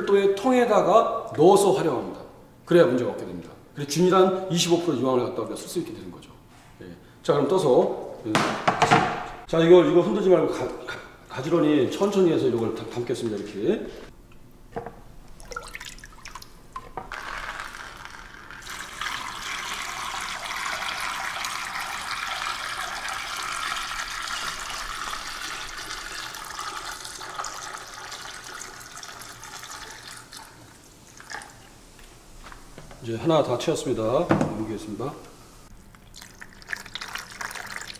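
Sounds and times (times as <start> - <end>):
liquid pouring into plastic jerrycan: 15.4 - 31.6, 35.9 - 37.9.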